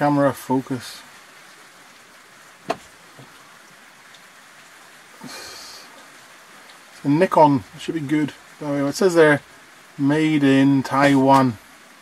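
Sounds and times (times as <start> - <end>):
faint steady hiss: 0.0 - 12.0.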